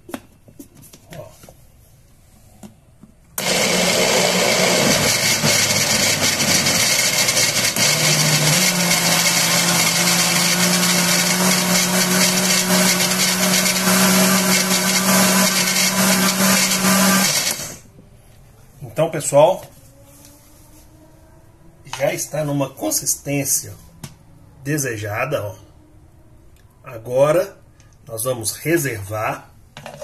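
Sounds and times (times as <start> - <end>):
blender running: 3.4 - 17.8.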